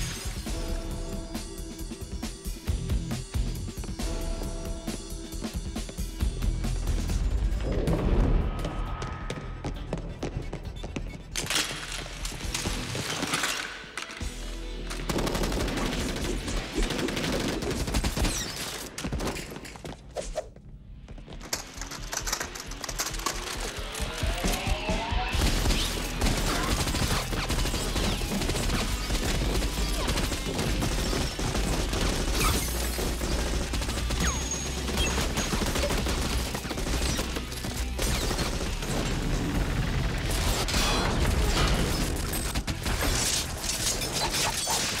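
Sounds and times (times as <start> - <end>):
rapid gunfire: 15.0 - 19.6, 21.6 - 45.0.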